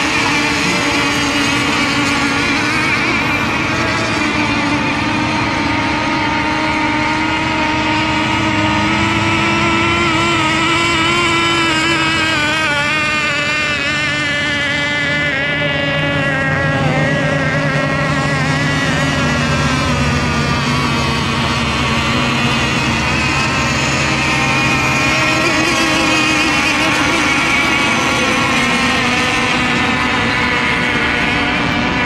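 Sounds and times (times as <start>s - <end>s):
racing boat motors high-pitched: 0.0s - 32.0s.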